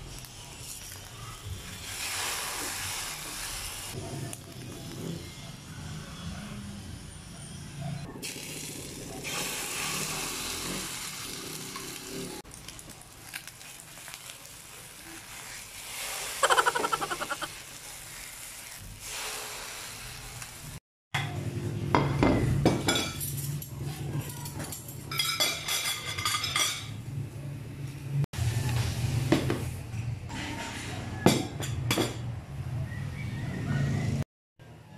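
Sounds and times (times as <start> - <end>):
patties sizzling in hot oil: 0.0 - 5.0, 8.2 - 20.8
cutlery clinking on plates: 22.1 - 23.7, 24.4 - 27.0.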